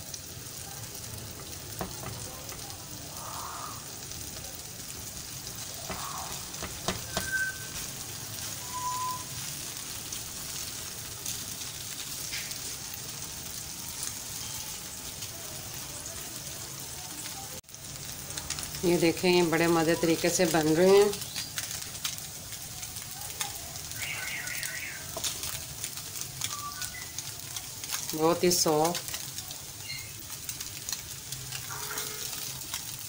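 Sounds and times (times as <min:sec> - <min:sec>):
bread sizzling on griddle: 0:00.0 - 0:33.0
spatula tapping pan: 0:01.3 - 0:02.8, 0:05.8 - 0:07.9.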